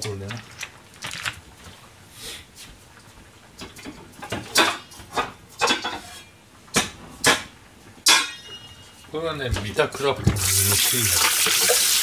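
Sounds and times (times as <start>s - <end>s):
dishes and utensils clattering: 3.6s - 9.1s.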